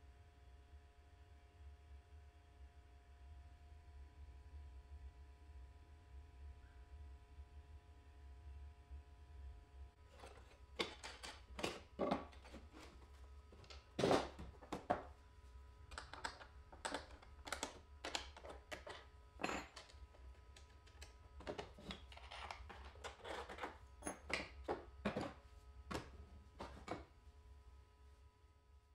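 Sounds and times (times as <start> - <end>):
knocks and clacks on workbench: 10.2 - 15.1, 15.9 - 27.1.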